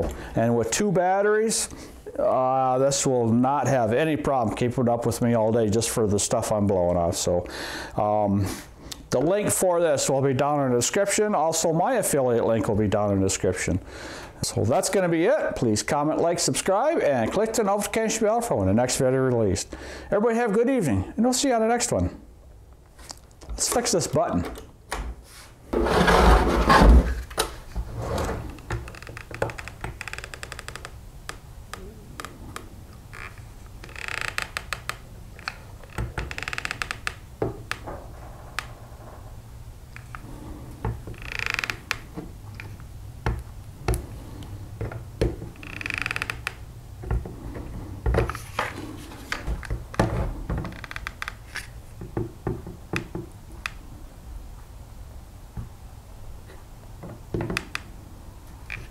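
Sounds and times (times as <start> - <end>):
short plastic scrapes: 25.2 - 28.6.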